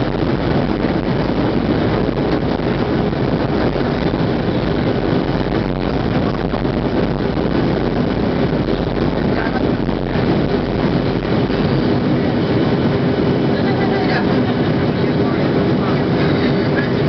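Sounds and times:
air rushing past fuselage: 0.0s - 17.0s
low hum of jet engines: 0.0s - 17.0s.

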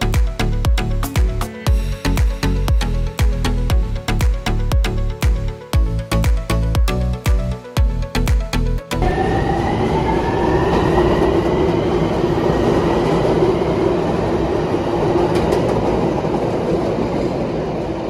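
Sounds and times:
wheels rumbling on rails: 9.0s - 18.0s.

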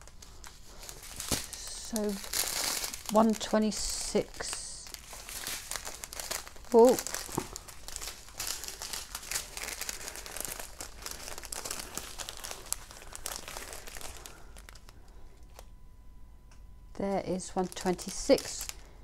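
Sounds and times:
plastic bags crinkling: 0.0s - 15.7s, 17.4s - 19.0s.

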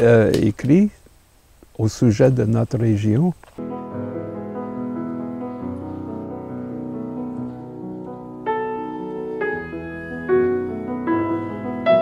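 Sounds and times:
slow piano music: 3.6s - 12.0s.

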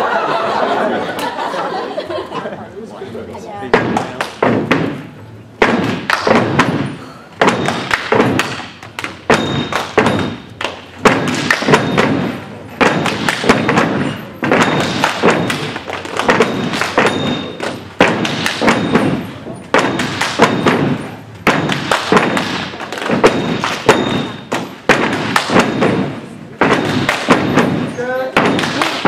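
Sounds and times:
group stomping: 3.7s - 29.0s
hand claps and slaps: 3.8s - 5.0s, 5.6s - 6.8s, 7.4s - 12.2s, 12.8s - 19.2s, 19.8s - 26.0s, 26.6s - 27.7s, 28.4s - 29.0s.

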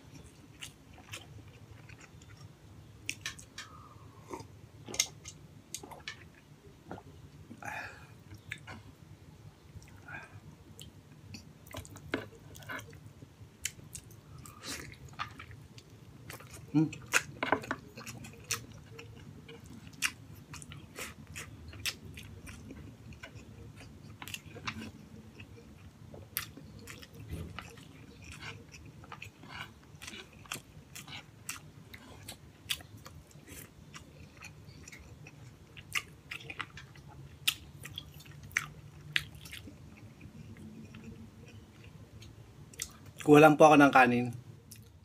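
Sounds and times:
close chewing: 13.6s - 43.3s.

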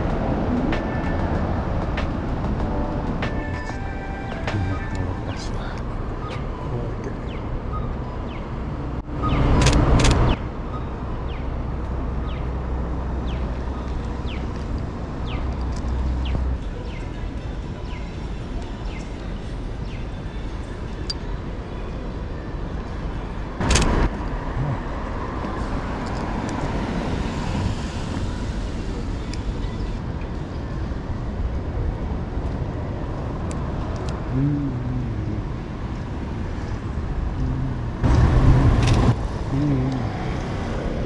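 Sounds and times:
road traffic hum: 0.0s - 41.0s
rushes of noise: 32.7s - 41.0s.

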